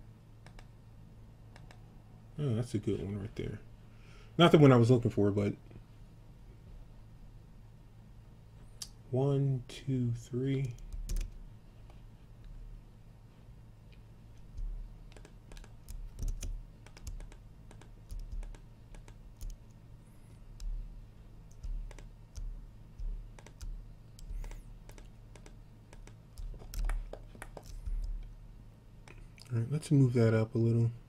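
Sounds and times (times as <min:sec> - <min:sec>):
low electrical hum: 0:00.0 - 0:31.0
mouse clicks: 0:00.4 - 0:00.7, 0:01.5 - 0:01.8, 0:14.4 - 0:19.8, 0:21.5 - 0:28.2
keyboard keystrokes: 0:10.6 - 0:11.4, 0:14.4 - 0:19.8, 0:21.5 - 0:28.2.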